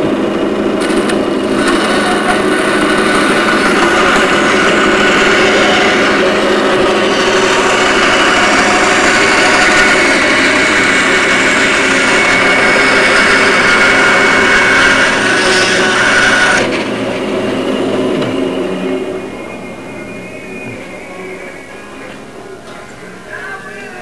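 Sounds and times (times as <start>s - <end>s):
power tool motor whine: 0.0s - 22.3s
low hum: 0.0s - 24.0s.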